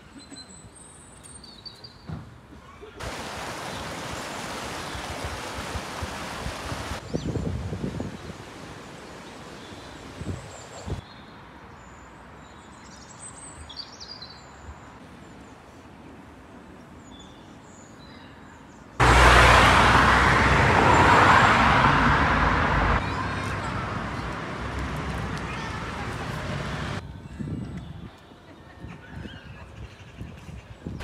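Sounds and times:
road traffic rushing: 19.0s - 27.0s.

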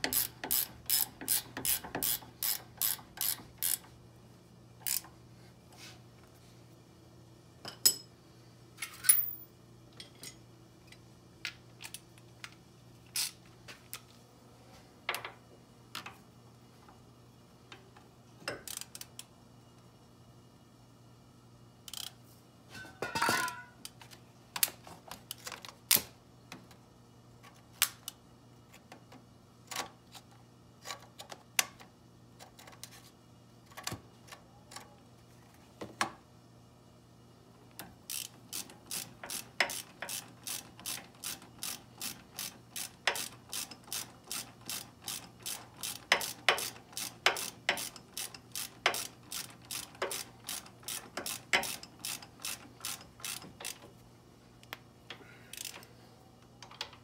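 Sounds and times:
socket ratchet clicking: 0.0s - 3.8s, 38.1s - 53.8s.

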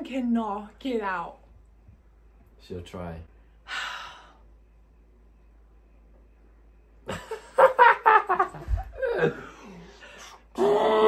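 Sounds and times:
man and woman laughing: 7.1s - 9.9s.

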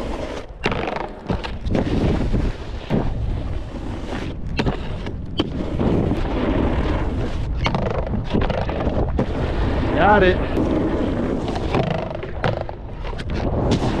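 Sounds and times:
snowboard scraping over snow: 0.0s - 14.0s
wind on microphone: 0.0s - 14.0s.

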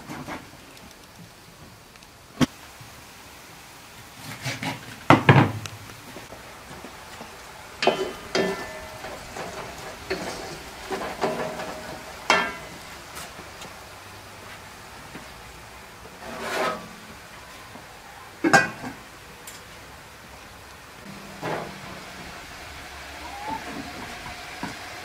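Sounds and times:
wooden spoon knocking in metal pan: 7.8s - 9.1s.

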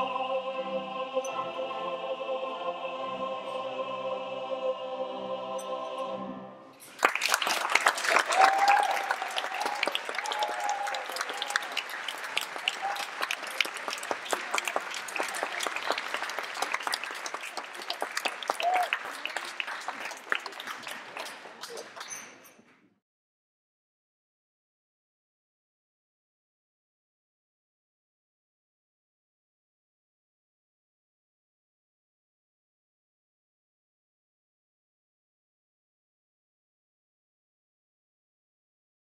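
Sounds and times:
male voice choir singing: 0.0s - 6.6s
audience applause: 6.8s - 22.4s.

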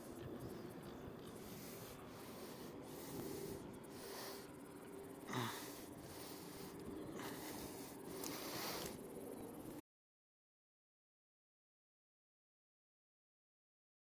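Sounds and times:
person breathing: 1.3s - 9.3s.

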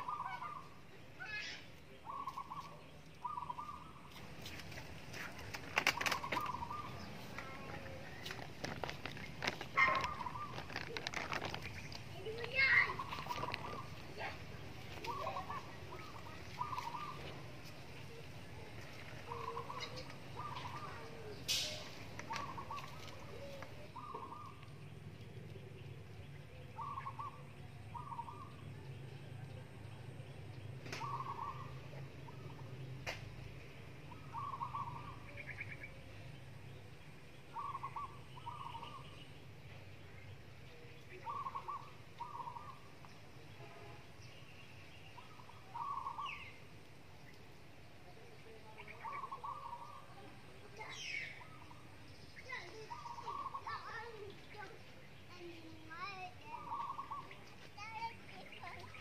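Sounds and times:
poultry rattling calls: 0.0s - 14.4s
birds calling: 0.0s - 59.0s
rice paper crackling: 4.2s - 19.4s
brief sharp rustle: 21.4s - 23.2s.

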